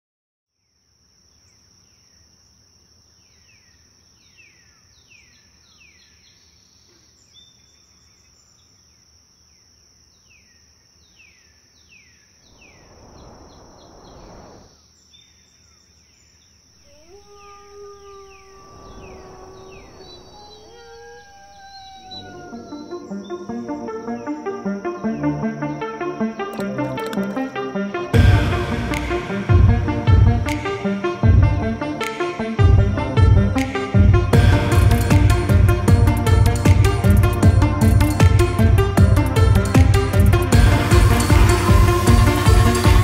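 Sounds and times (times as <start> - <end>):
rushing noise: 12.5 - 14.7, 16.9 - 22.6
bird downward-sweeping calls: 16.8 - 23.4
high-pitched insect drone: 16.8 - 27.8.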